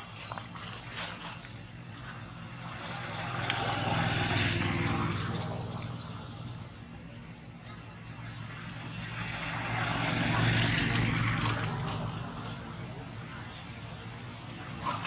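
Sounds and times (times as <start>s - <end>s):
small birds chirping: 0.0s - 8.8s.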